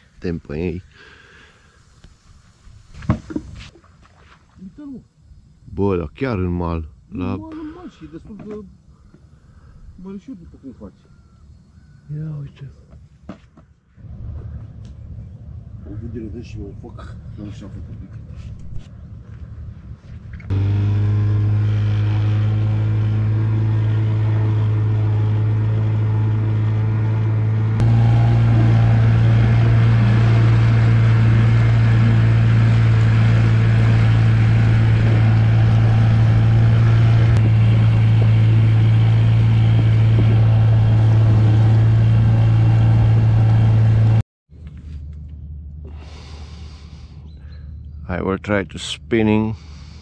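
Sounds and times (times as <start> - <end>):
outboard motor running: 19.3 - 44.2.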